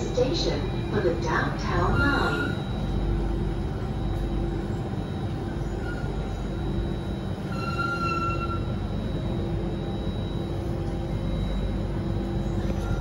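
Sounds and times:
metro train rumble: 0:00.0 - 0:13.0
high squeal: 0:01.8 - 0:02.9, 0:05.6 - 0:09.0.

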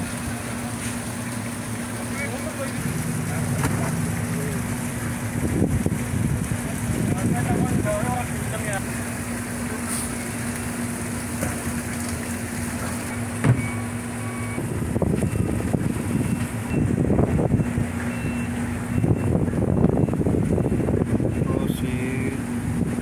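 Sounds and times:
engine humming: 0:00.0 - 0:23.0
rough rumbling noise: 0:01.9 - 0:08.9
sharp thump: 0:03.3 - 0:04.3, 0:13.4 - 0:13.7.

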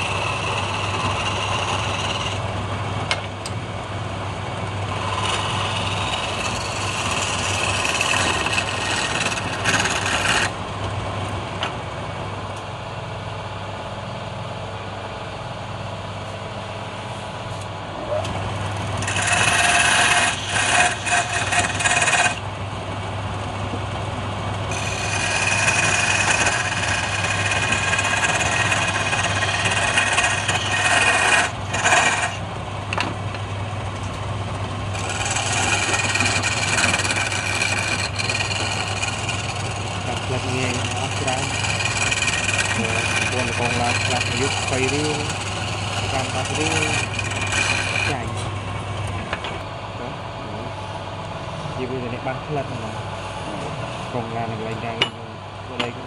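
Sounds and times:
chisel scraping spinning wood: 0:00.0 - 0:10.7, 0:17.6 - 0:22.6, 0:23.9 - 0:49.7
lathe motor hum: 0:00.0 - 0:16.1, 0:16.7 - 0:56.0.

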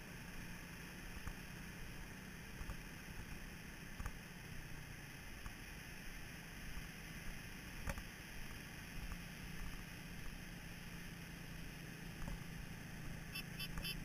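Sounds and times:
wind and surf hiss: 0:00.0 - 0:14.0.

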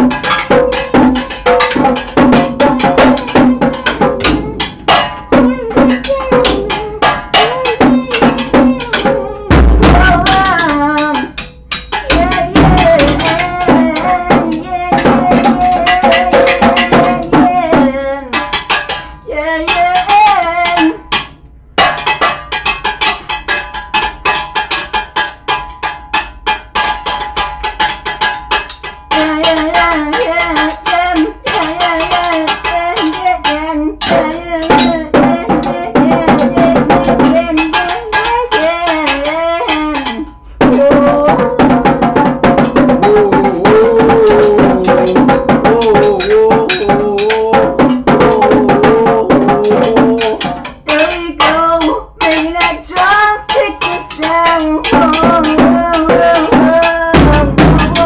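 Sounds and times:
drum kit played with sticks: 0:00.0 - 0:58.0
man singing wordlessly: 0:12.0 - 0:18.4, 0:29.2 - 0:41.9, 0:42.8 - 0:58.0.

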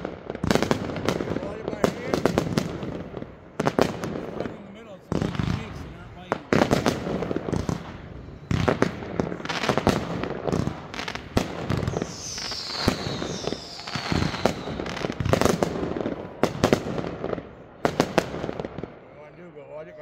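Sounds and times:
fireworks banging: 0:00.0 - 0:19.7
falling firework whistles: 0:06.8 - 0:16.1.

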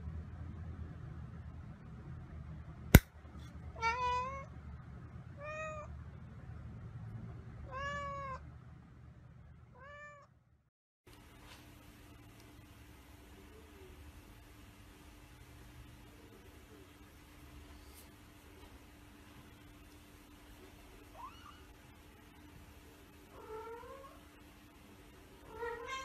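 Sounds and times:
cat meowing: 0:03.8 - 0:04.5, 0:07.7 - 0:08.4, 0:09.8 - 0:10.3, 0:25.5 - 0:26.0.

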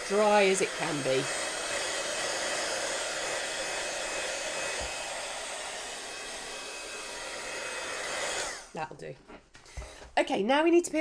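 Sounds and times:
heat gun blowing hot air: 0:00.0 - 0:08.8.

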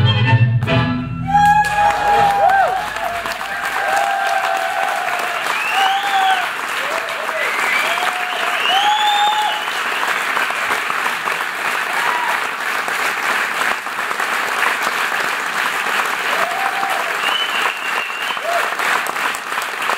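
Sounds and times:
shouted cheers: 0:01.2 - 0:10.1, 0:11.8 - 0:12.6, 0:16.2 - 0:19.0
audience applauding: 0:01.3 - 0:19.9.

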